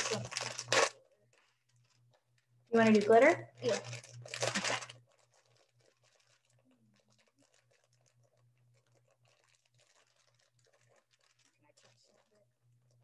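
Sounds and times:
craft materials rustling: 2.8 - 13.0.

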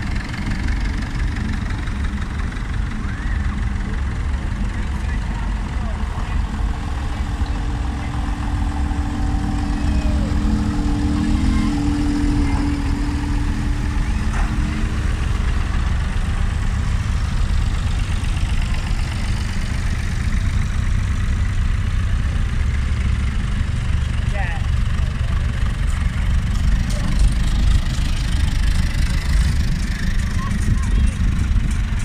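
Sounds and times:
passing tractor engine hum: 0.0 - 32.0
tractor engines rumbling: 0.0 - 32.0.

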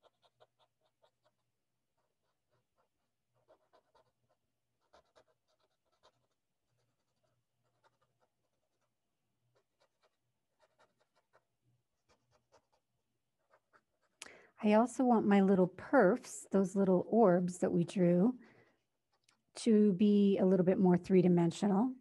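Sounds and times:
drawing tool rubbing on paper: 0.0 - 14.2, 18.6 - 19.6.

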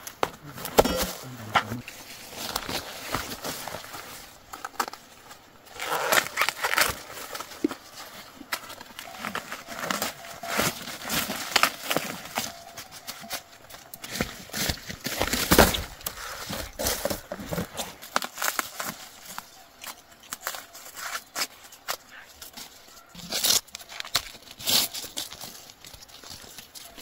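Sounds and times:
dry corn husks rustling: 0.0 - 27.0
corn ears snapping off stalks: 8.4 - 27.0.

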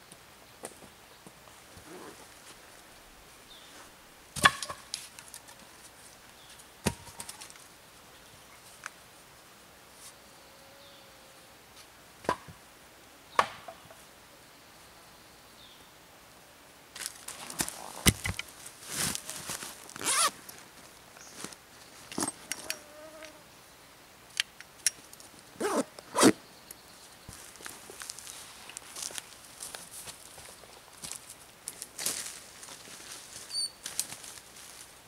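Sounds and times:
zipper pulled: 1.8 - 2.2, 20.0 - 20.3, 25.6 - 26.4
fly buzzing: 22.6 - 23.5.

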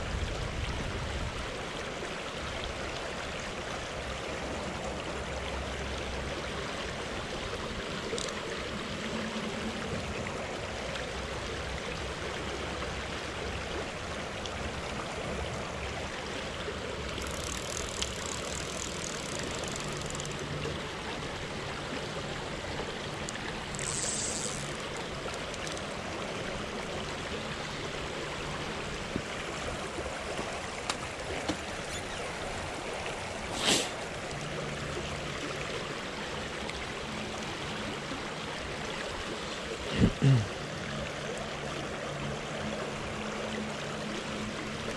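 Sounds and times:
creek water over gravel: 0.0 - 44.9
faint high ticks: 8.0 - 8.5, 17.2 - 20.7, 23.2 - 26.0.

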